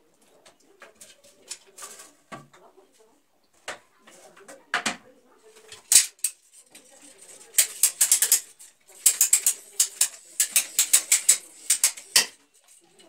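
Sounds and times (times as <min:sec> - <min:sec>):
small tool clicks and taps: 0:07.6 - 0:12.4.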